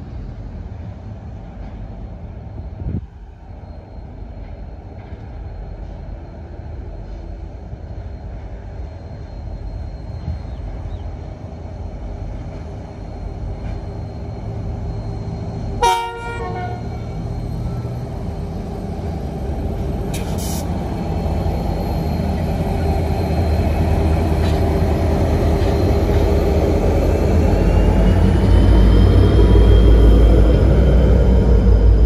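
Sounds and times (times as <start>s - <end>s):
locomotive engines rumbling: 0.0s - 32.0s
locomotive horn toot: 15.8s - 17.1s.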